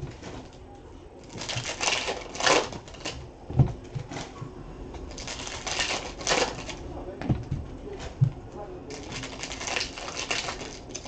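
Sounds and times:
cards and wrapper crinkling: 1.2s - 3.2s, 5.1s - 6.8s, 8.9s - 11.0s.

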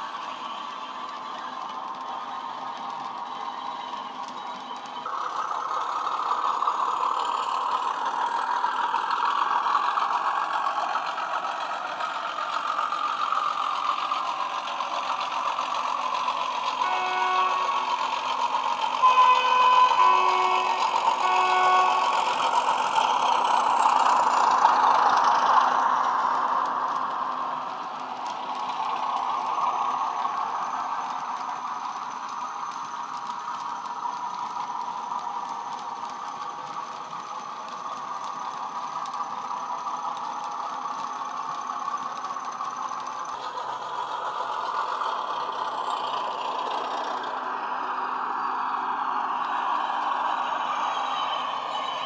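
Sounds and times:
diesel locomotive engine running: 0.0s - 52.0s
two-tone horn notes: 16.8s - 17.8s, 19.0s - 22.2s.

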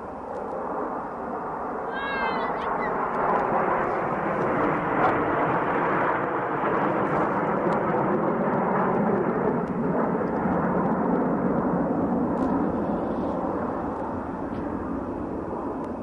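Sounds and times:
jet noise overhead: 0.0s - 16.0s.

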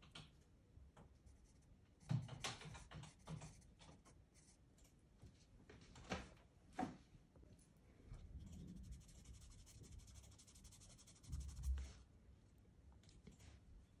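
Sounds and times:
pastel pencil scratching on paper: 1.3s - 4.6s, 8.4s - 11.9s.

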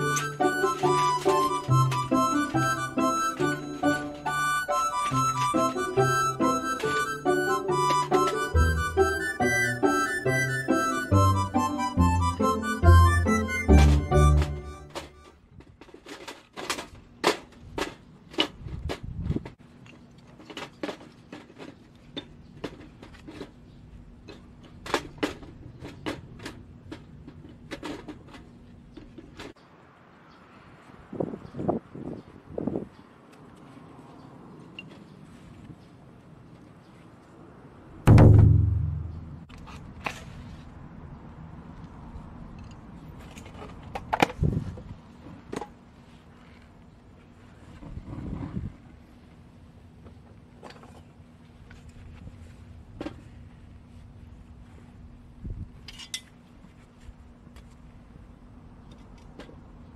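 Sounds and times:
dull bump: 38.1s - 39.5s.

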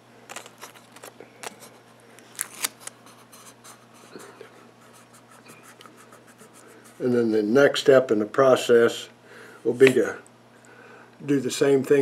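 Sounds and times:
tape ticks and rustles: 0.3s - 3.0s
tape crackling: 0.3s - 3.4s.

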